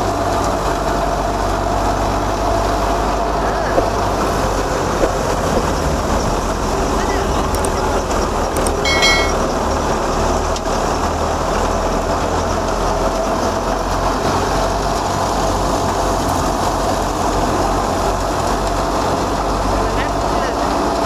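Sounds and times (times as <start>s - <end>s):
wheat thresher running: 0.0s - 8.8s, 9.5s - 21.0s
high chirp: 8.6s - 9.4s.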